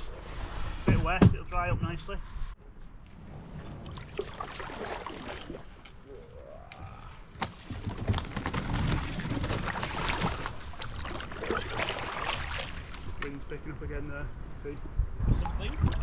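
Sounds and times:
water sloshing around paddle: 0:03.3 - 0:06.0, 0:07.5 - 0:13.4
branches scraping against boat: 0:07.5 - 0:13.6.

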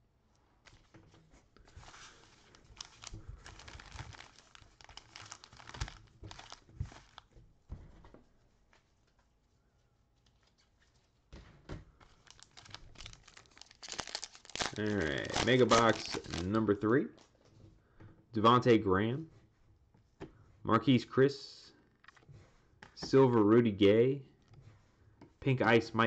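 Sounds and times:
foil packs crinkling: 0:01.7 - 0:07.3, 0:12.0 - 0:17.3.

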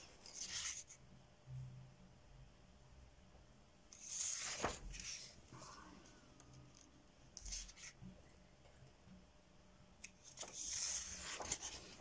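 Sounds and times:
paper pages rustling: 0:00.0 - 0:01.0, 0:04.0 - 0:05.7, 0:10.0 - 0:12.0.

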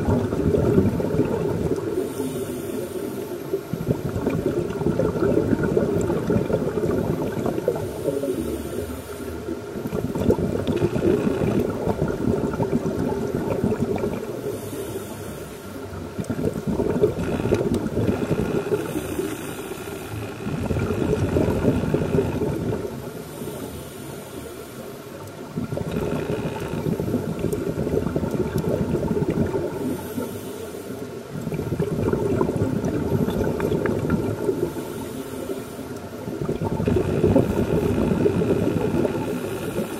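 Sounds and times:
exhaled air bubbling: 0:00.0 - 0:39.9
regulator inhale hiss: 0:01.8 - 0:03.8, 0:07.2 - 0:10.2, 0:14.2 - 0:16.0, 0:18.1 - 0:20.6, 0:23.0 - 0:25.2, 0:29.6 - 0:31.4, 0:34.4 - 0:36.3, 0:37.2 - 0:39.9.

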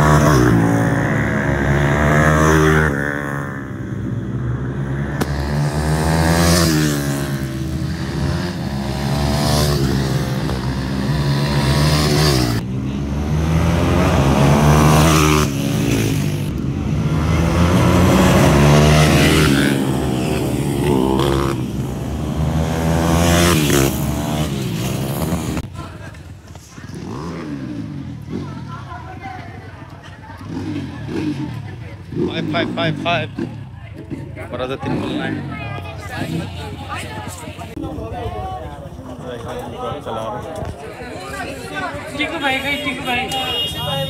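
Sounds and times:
motorcycle engines revving: 0:00.0 - 0:44.0.

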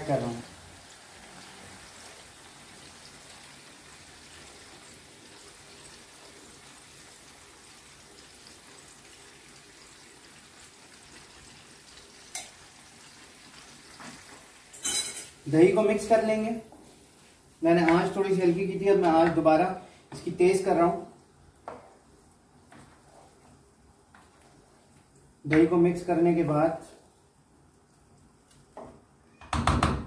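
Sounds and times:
chicken sizzling in oil: 0:00.0 - 0:20.8.

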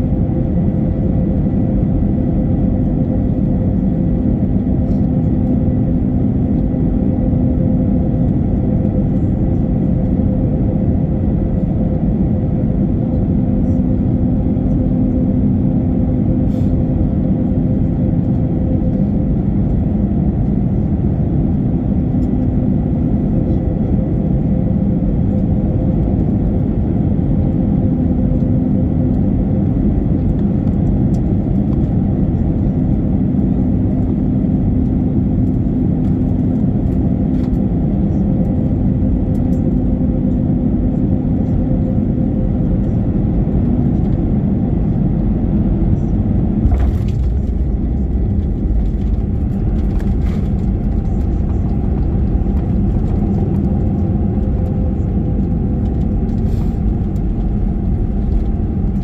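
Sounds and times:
airplane cabin engine and air noise: 0:00.0 - 0:59.0
low rumble of runway rollout: 0:00.0 - 0:59.0
faint hum: 0:27.6 - 0:59.0.

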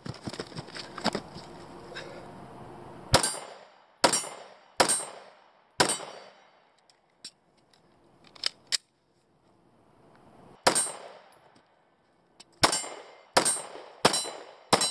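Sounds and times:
pistol shots: 0:03.1 - 0:06.6, 0:10.6 - 0:11.4, 0:12.6 - 0:14.9.

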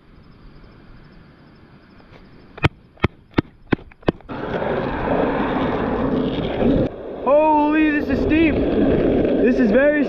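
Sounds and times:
steady rushing noise: 0:02.6 - 0:10.0.

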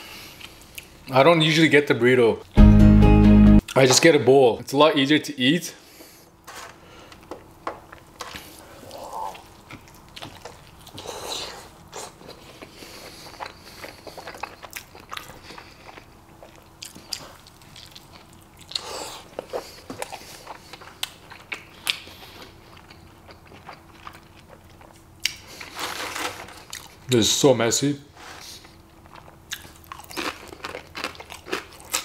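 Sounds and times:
person chewing food: 0:07.1 - 0:27.1, 0:28.4 - 0:32.0.

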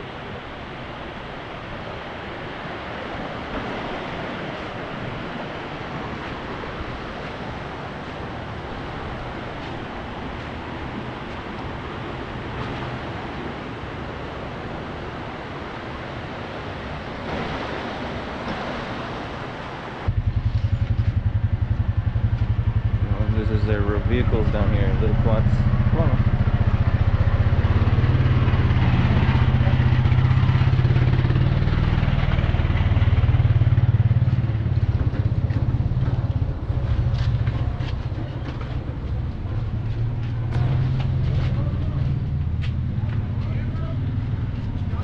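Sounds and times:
steady rushing noise: 0:00.0 - 0:45.0
quad engine low putter: 0:20.1 - 0:45.0.

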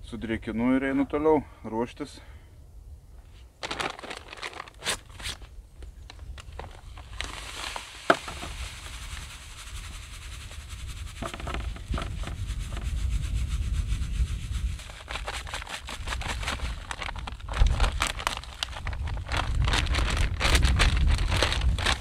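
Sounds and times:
dry bait rubbed through sieve: 0:07.2 - 0:17.2
low rumble: 0:16.9 - 0:22.0.

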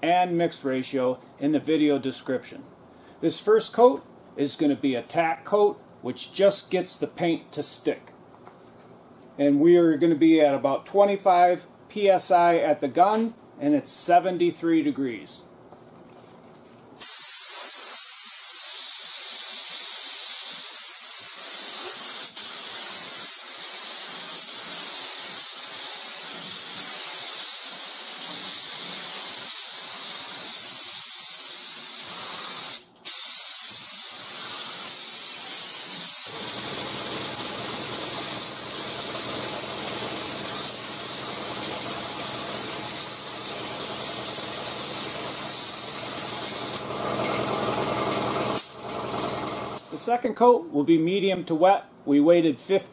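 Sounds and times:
spray gun hissing: 0:17.0 - 0:46.9.

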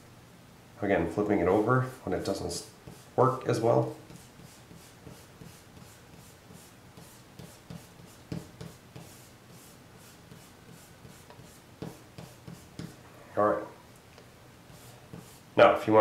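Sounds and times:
eraser scratching on paper: 0:02.8 - 0:03.2, 0:04.1 - 0:13.0, 0:14.7 - 0:15.5.

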